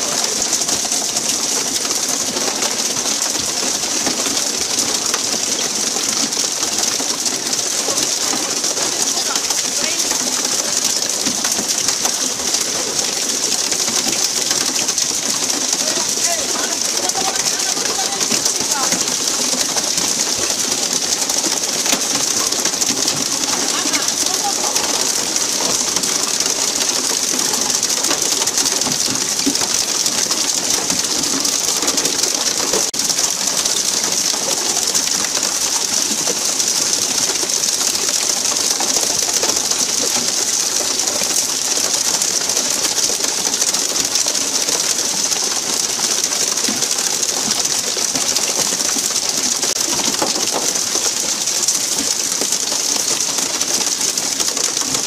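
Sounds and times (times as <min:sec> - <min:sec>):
water sprayers hissing: 0:07.0 - 0:35.6.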